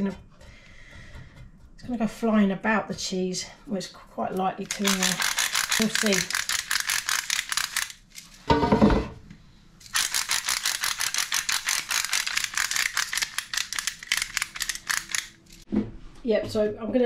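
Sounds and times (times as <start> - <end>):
pepper mill grinding: 4.4 - 8.5, 9.8 - 15.6.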